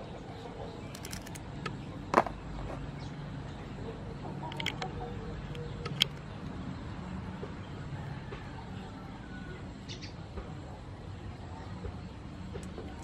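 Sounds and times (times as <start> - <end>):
low background hum: 0.0 - 13.0
scissors snipping shells: 0.9 - 1.7.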